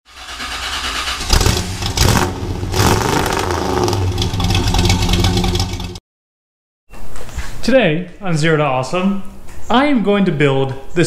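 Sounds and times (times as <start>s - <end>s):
engine starting and revving: 0.1s - 6.0s.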